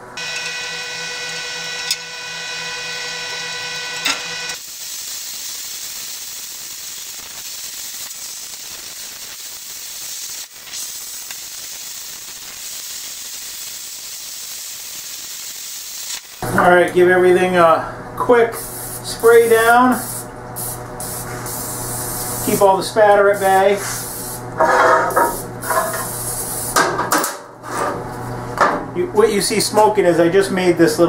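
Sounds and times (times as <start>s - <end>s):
machine hum: 0.0s - 9.0s
plasma cutter torch hissing: 2.6s - 16.4s, 18.6s - 24.5s, 25.1s - 26.8s.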